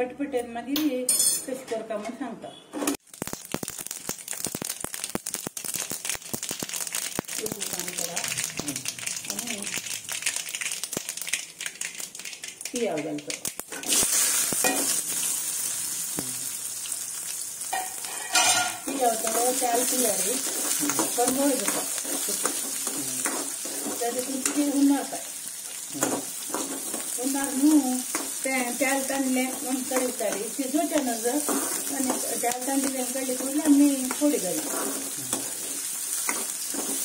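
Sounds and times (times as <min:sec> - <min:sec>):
onions sizzling in hot oil: 0:03.0 - 0:37.0
spoon clinking and scraping pan: 0:17.7 - 0:19.4.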